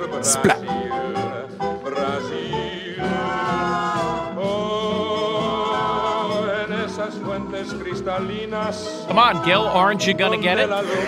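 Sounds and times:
person singing with vibrato: 0.1 - 3.0, 10.6 - 11.0.

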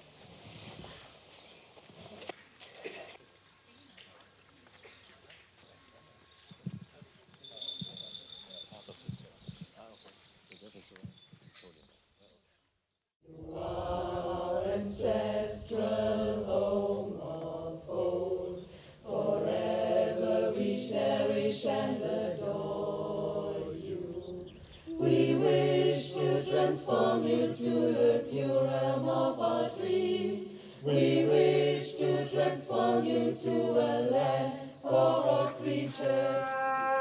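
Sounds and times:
mixed choir singing: 13.3 - 36.6.

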